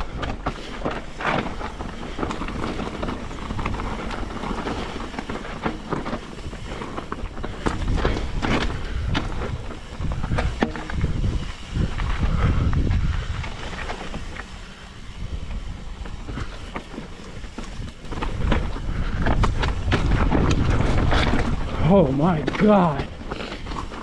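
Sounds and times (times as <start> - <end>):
bike knocking and rattling: 0.0 - 24.0
tyres crunching over gravel: 0.0 - 24.0
wind noise on microphone: 0.0 - 24.0.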